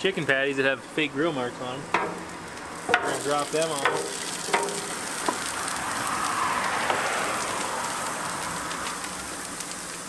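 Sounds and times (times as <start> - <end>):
patties sizzling on a griddle: 0.0 - 10.0.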